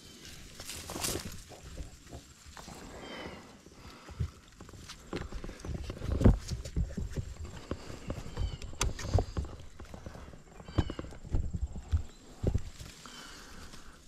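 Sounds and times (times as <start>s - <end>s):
leaves and stems rustling: 0.0s - 14.0s
camera handling thumps and clicks: 7.6s - 10.0s.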